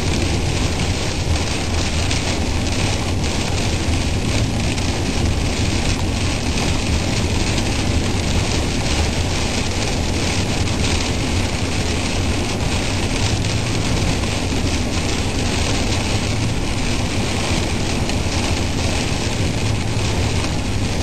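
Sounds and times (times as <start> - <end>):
heavy rain: 0.0 - 21.0
wind: 0.0 - 21.0.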